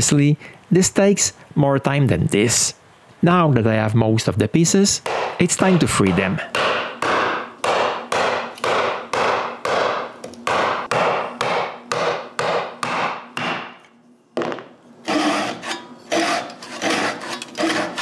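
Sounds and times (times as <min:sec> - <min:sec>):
back saw sawing: 0:15.0 - 0:18.0.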